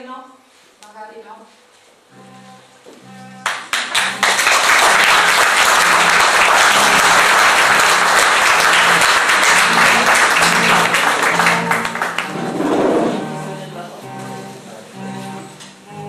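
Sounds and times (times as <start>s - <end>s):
faint music: 0.0s - 16.0s
audience applauding: 3.4s - 13.2s.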